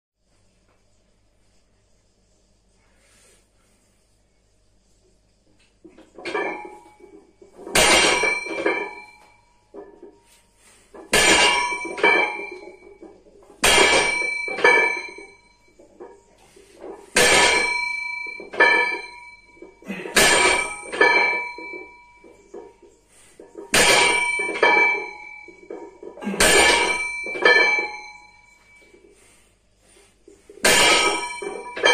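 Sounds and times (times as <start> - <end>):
weight plates clanking on floor: 5.8 - 31.9
smaller metal clink: 6.0 - 10.2, 11.0 - 22.9, 23.5 - 29.4, 30.6 - 31.9.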